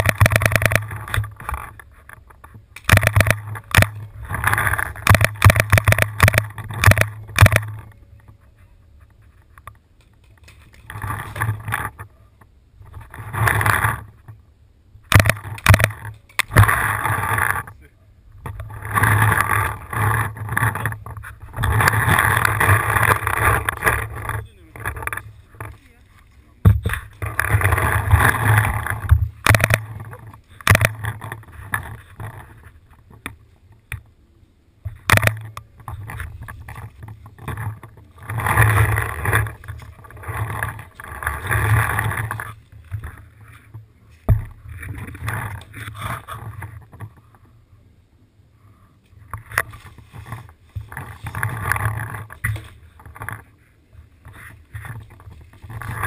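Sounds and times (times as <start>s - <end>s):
sharp pops: 0.0s - 7.8s, 15.0s - 25.8s, 26.6s - 32.0s
body-worn camera rustling: 0.0s - 14.4s, 15.0s - 34.2s, 34.8s - 47.5s, 48.7s - 56.0s.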